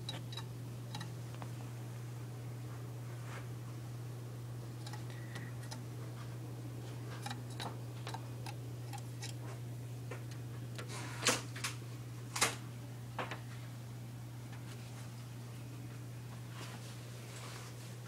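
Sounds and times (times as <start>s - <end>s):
bird pecking on glass: 4.8s - 5.8s.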